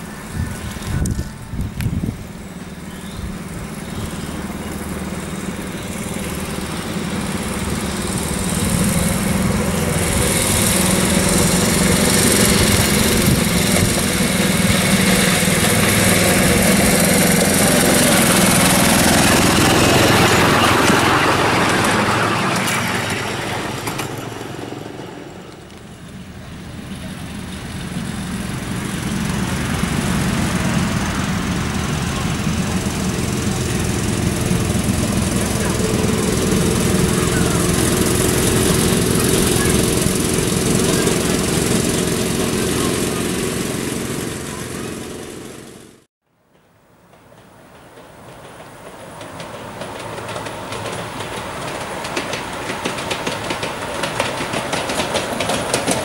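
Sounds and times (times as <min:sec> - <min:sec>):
miniature locomotive engine passing: 0:00.0 - 0:56.0.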